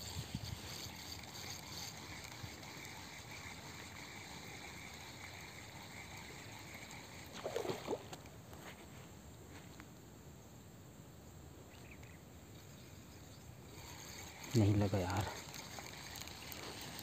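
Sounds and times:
high insect drone: 0:00.0 - 0:08.1, 0:12.5 - 0:17.0.

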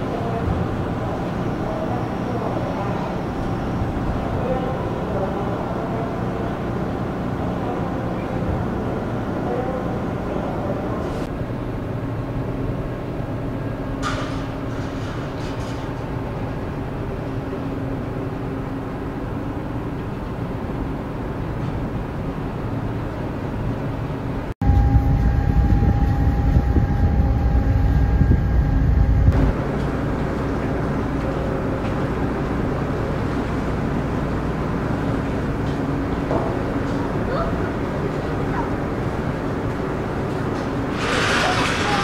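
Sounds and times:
ferry engines droning: 0:00.0 - 0:42.0
steady high tone: 0:24.6 - 0:29.6
wind noise: 0:24.6 - 0:29.7.

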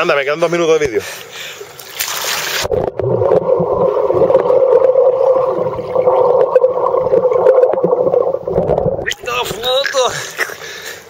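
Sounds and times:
underwater river rush and bubbles: 0:02.2 - 0:09.8.

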